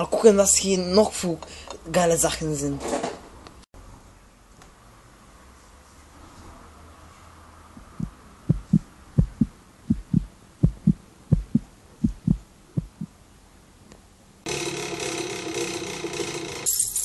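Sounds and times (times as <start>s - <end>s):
heartbeat double thumps: 7.8s - 13.2s
faint low hum: 7.8s - 14.0s.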